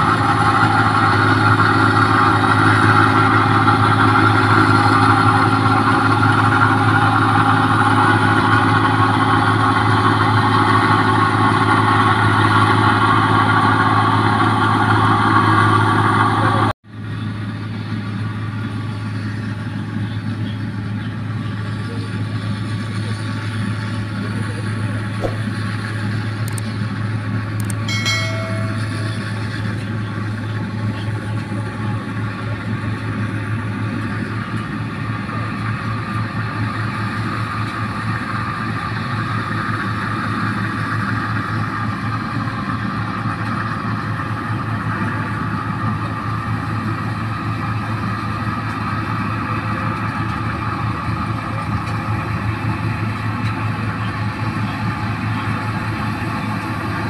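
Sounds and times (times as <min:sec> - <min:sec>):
combine harvester running: 0:00.0 - 0:57.0.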